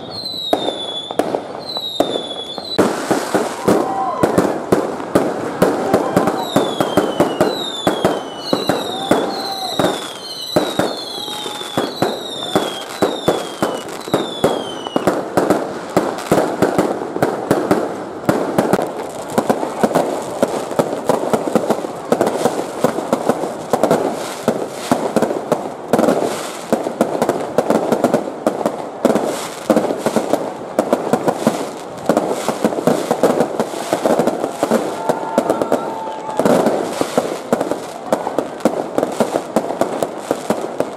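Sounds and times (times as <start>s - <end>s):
fireworks whistles falling in pitch: 0.0s - 4.7s, 5.7s - 15.2s, 33.6s - 37.4s
firecrackers crackling and banging: 0.0s - 40.9s.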